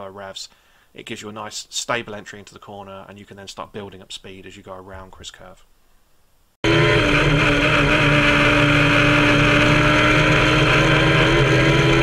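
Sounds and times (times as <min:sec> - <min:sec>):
motorcycle engine at high revs: 0:06.6 - 0:12.0.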